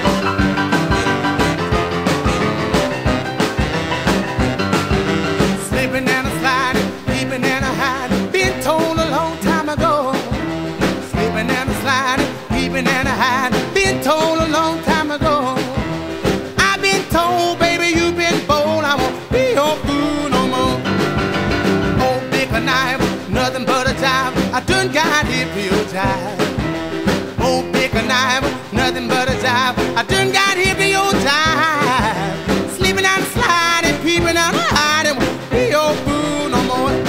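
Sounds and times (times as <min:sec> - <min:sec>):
upbeat song with singing and guitar: 0:00.0 - 0:37.0.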